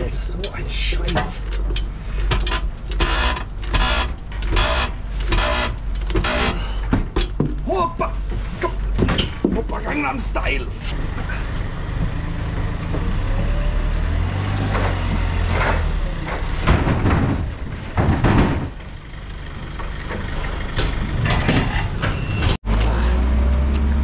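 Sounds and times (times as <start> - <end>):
wooden pallets clattering: 0.2 - 10.2, 14.4 - 22.6
hand pallet truck rolling: 0.3 - 10.0, 12.0 - 22.6
engine running: 10.6 - 24.0.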